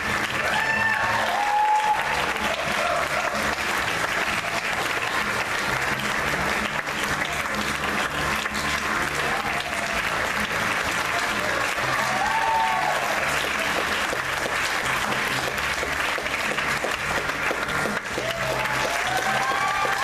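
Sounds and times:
audience clapping: 0:00.0 - 0:20.0
whoops and cheers: 0:00.3 - 0:03.6, 0:09.2 - 0:10.0, 0:11.2 - 0:13.8, 0:18.1 - 0:20.0.

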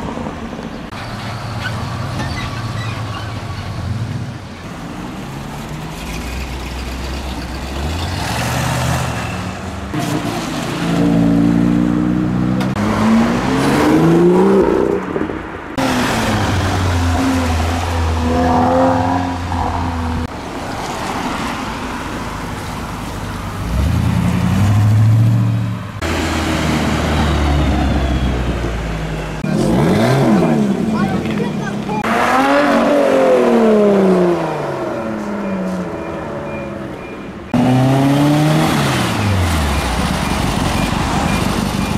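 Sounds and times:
cars revving past: 0:07.7 - 0:21.7, 0:23.6 - 0:41.9.

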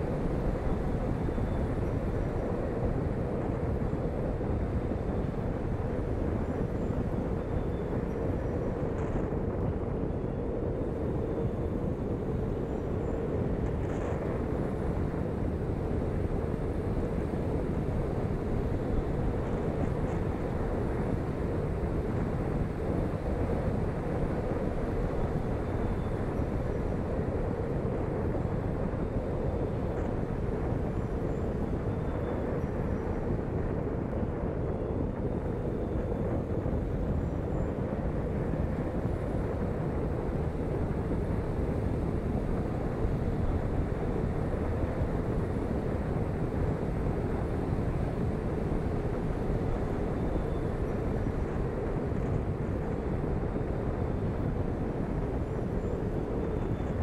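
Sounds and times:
wind rush: 0:00.0 - 0:57.0.

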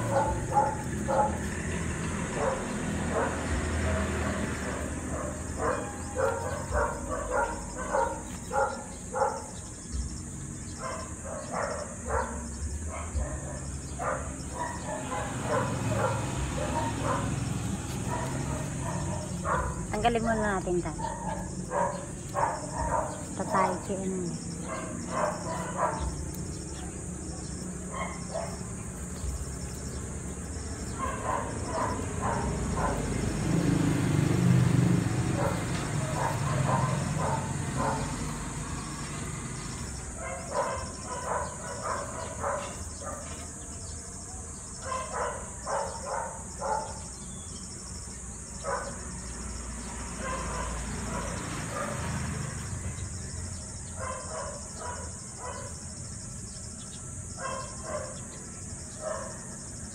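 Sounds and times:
crickets and insects chorus: 0:00.0 - 0:59.9.

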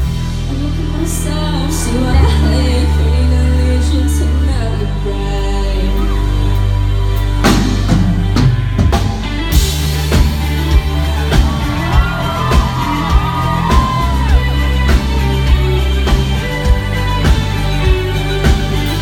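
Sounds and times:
live pop band playing: 0:00.0 - 0:19.0
lead electric guitar bending: 0:01.2 - 0:19.0
big drum hit: 0:07.5 - 0:19.0.

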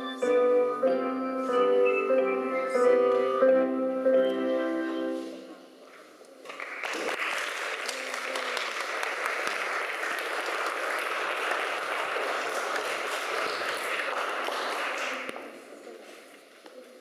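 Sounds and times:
piano music: 0:00.0 - 0:05.5
audience applauding: 0:06.4 - 0:15.4.

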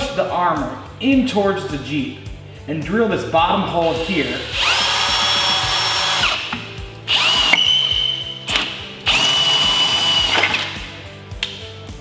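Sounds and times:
power drill boring sheet metal: 0:03.7 - 0:06.5, 0:07.1 - 0:08.1, 0:09.1 - 0:10.6.

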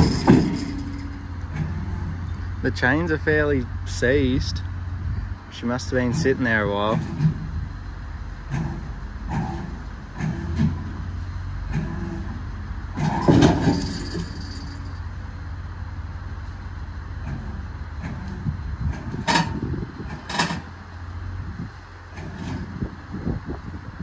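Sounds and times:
sharp metal clanks: 0:00.0 - 0:01.8, 0:13.0 - 0:15.1
heavy metal clunk: 0:00.0 - 0:02.4, 0:06.0 - 0:07.6, 0:08.4 - 0:15.0, 0:17.2 - 0:20.9, 0:22.1 - 0:23.0
machinery running: 0:00.0 - 0:24.0.

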